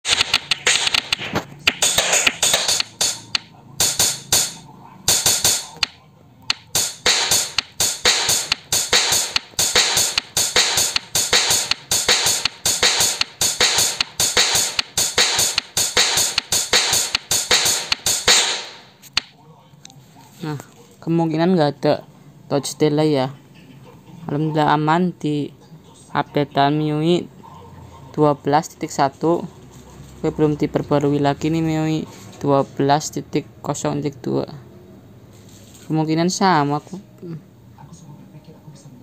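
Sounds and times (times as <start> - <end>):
drum and cymbal hits: 0.0 - 19.3
taps on a touchscreen: 0.0 - 19.3.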